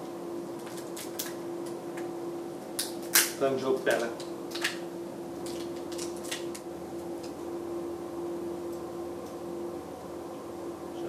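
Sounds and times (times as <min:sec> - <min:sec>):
steady low hum: 0:00.0 - 0:11.0
lobster shell crackling: 0:05.4 - 0:06.6.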